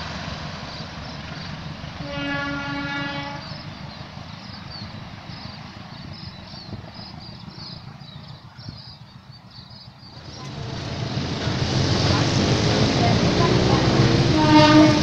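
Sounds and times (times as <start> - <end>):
distant train rumble: 0.0 - 15.0
wind noise: 4.9 - 9.3
rush of noise: 10.2 - 15.0.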